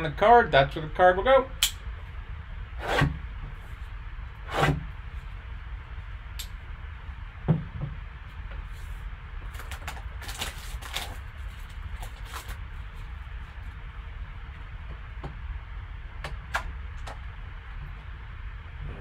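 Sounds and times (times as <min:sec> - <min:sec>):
crisp rustles and scrapes: 0:08.7 - 0:13.7.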